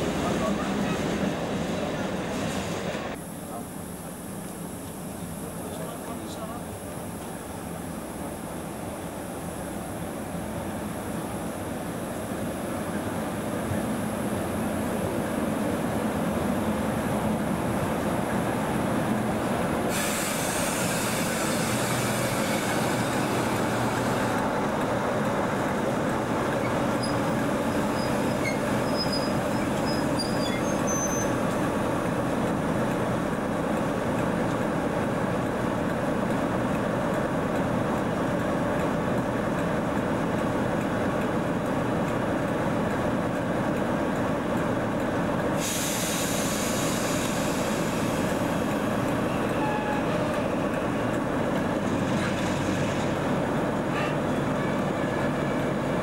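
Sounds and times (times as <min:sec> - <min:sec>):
freight train rumbling on rails: 0:00.0 - 0:56.0
faint wheel squeals: 0:27.9 - 0:31.4.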